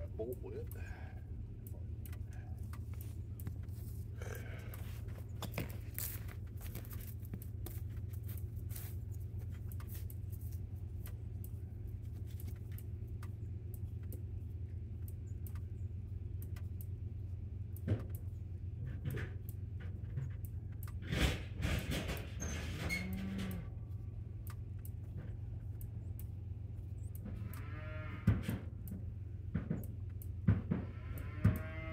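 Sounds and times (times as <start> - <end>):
steady low hum: 0.0 - 21.8, 23.4 - 31.9
cattle crunching grain: 2.2 - 11.2.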